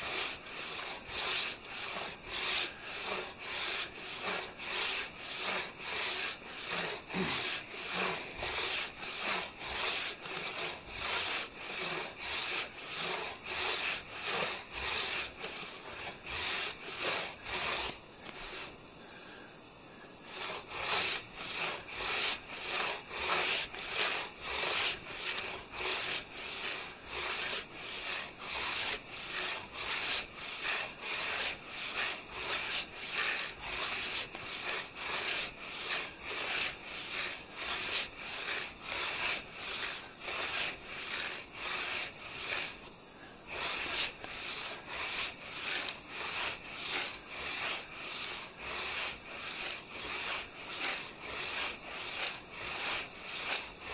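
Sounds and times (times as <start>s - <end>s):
hand saw cutting log: 0.0s - 19.3s, 20.2s - 53.9s.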